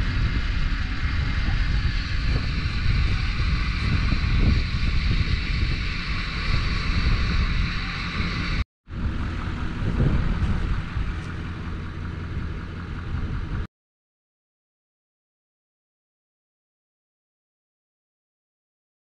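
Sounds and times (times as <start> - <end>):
truck engine idling: 0.0 - 13.7
wind buffeting microphone: 0.0 - 13.7.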